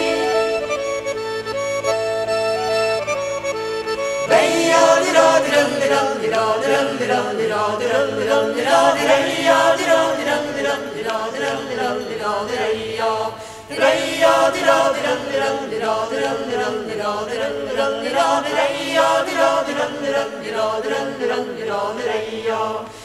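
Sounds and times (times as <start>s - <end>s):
voices singing in chorus: 0.0s - 0.9s, 4.2s - 23.0s
accordion playing held notes: 0.0s - 7.0s.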